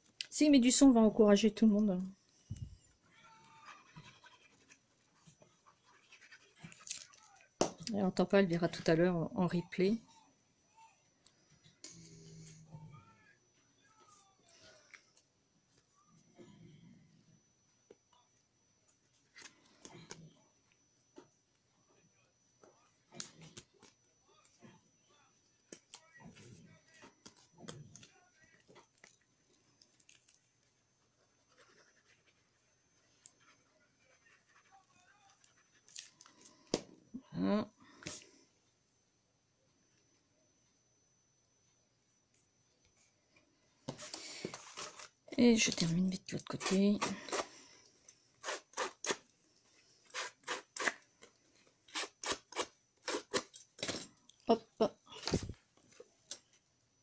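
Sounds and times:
paper and card rustling: 0:43.9 - 0:47.5.

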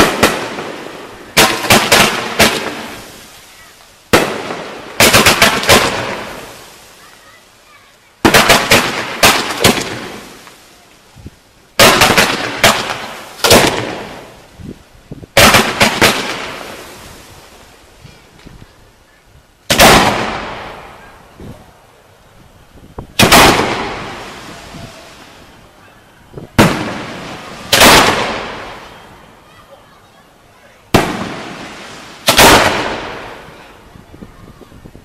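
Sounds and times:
firework bangs echoing: 0:00.0 - 0:06.8, 0:08.2 - 0:10.6, 0:11.8 - 0:14.4, 0:15.3 - 0:17.3, 0:19.7 - 0:21.5, 0:23.1 - 0:25.5, 0:26.3 - 0:29.2, 0:30.9 - 0:33.9.

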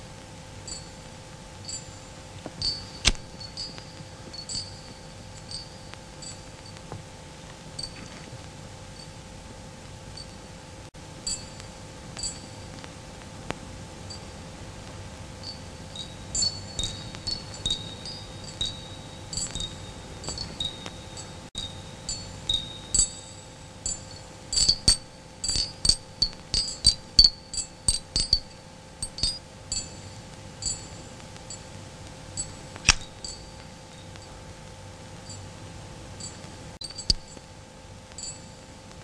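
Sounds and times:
faint steady hum: 0:00.0 - 0:39.0
glassy tinkling chimes: 0:00.6 - 0:06.9, 0:07.8 - 0:09.2, 0:11.2 - 0:12.8, 0:14.1 - 0:14.5, 0:15.4 - 0:31.7, 0:32.3 - 0:34.4, 0:36.2 - 0:37.5, 0:38.2 - 0:38.8.

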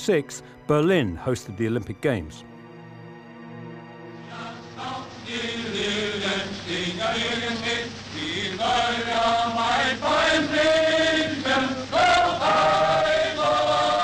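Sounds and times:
massed voices chanting: 0:04.2 - 0:14.0.

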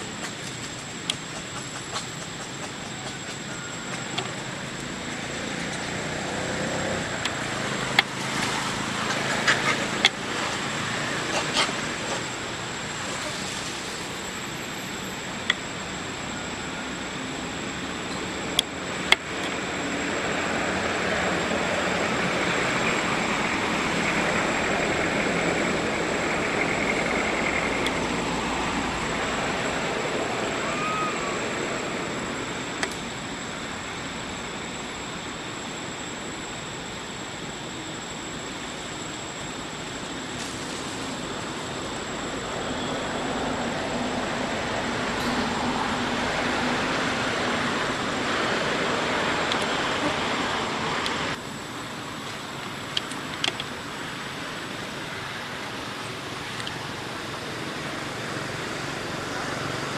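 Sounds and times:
rushing outdoor background noise: 0:00.0 - 0:59.9.

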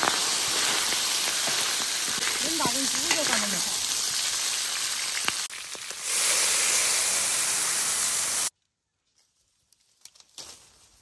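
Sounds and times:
meat sizzling in hot oil: 0:00.0 - 0:08.5.

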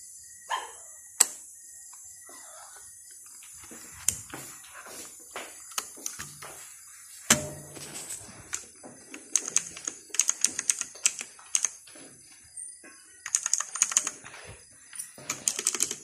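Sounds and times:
mechanical keyboard typing: 0:09.1 - 0:11.8, 0:13.2 - 0:14.2, 0:15.3 - 0:16.0.

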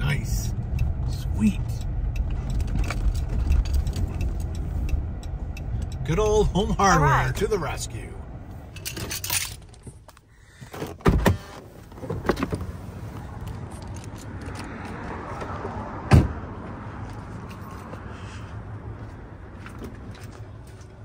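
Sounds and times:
keys jangling: 0:08.8 - 0:09.9
car door shutting: 0:10.7 - 0:12.7, 0:16.1 - 0:16.4
footsteps on pavement: 0:17.0 - 0:21.0.

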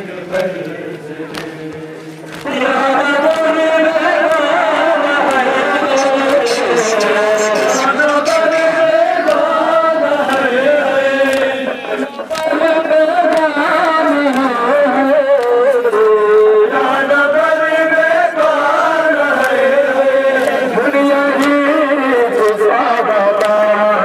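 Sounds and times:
mourning lament sung: 0:00.0 - 0:24.0
people striking chests in unison: 0:05.2 - 0:08.7.

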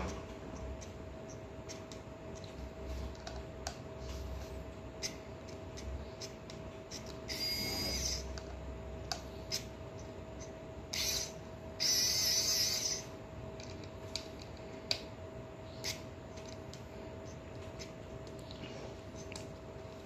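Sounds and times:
electric screwdriver motor hum: 0:07.3 - 0:08.2, 0:11.0 - 0:13.0.

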